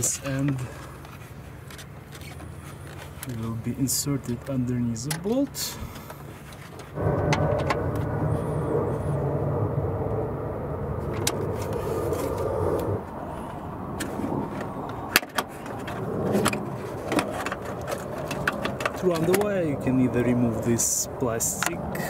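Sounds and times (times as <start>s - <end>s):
light clicks on metal parts: 0.0s - 7.0s
motor vehicle rumbling: 0.0s - 22.0s.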